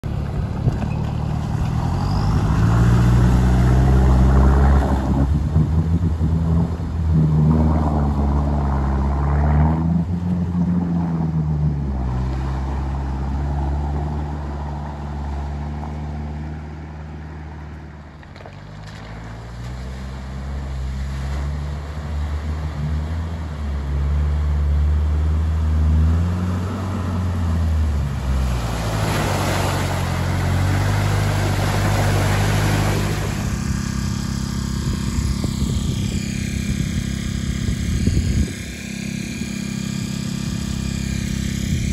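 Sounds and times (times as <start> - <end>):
engine revving: 0.0 - 17.9, 18.8 - 41.9
water splashing: 18.0 - 41.9.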